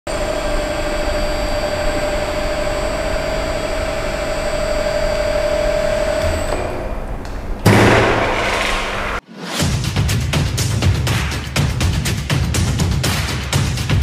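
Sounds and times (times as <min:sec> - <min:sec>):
machine hum with whine: 0:00.1 - 0:09.2
low thud: 0:06.5 - 0:09.2.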